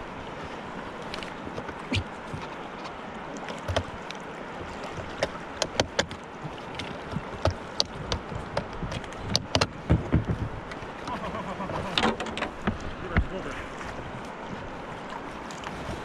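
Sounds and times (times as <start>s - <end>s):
river water lapping over pebbles: 0.0s - 16.0s
sharp clicks and knocks: 5.2s - 6.2s, 6.8s - 10.8s, 12.0s - 12.8s.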